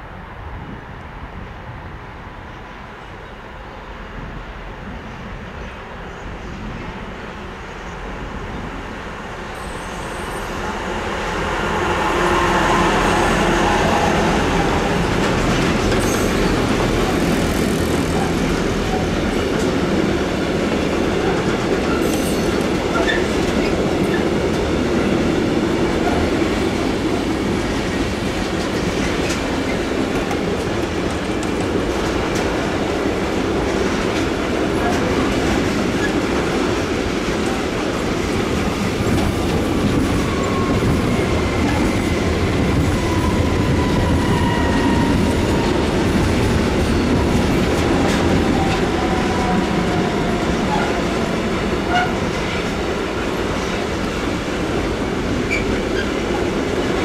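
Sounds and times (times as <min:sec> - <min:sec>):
freight train wheels clattering: 0:13.2 - 0:57.0.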